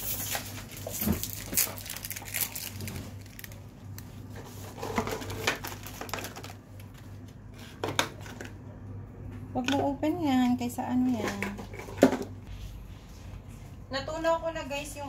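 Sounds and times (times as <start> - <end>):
plastic wrapper crinkling: 0.0 - 4.2, 5.1 - 7.0
low steady hum: 0.0 - 15.0.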